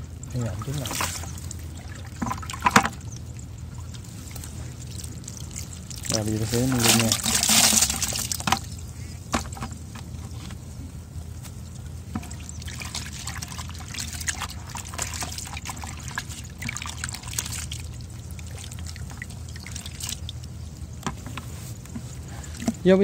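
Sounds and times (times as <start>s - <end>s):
water splashing in a bucket: 0.0s - 10.0s, 11.6s - 21.1s
hand stirring water: 0.1s - 10.8s, 11.4s - 22.8s.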